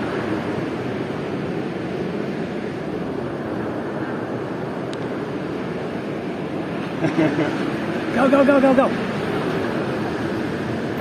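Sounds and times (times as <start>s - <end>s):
sea surf: 0.0s - 11.0s
wind: 0.0s - 11.0s
faint high tick: 4.9s - 5.1s.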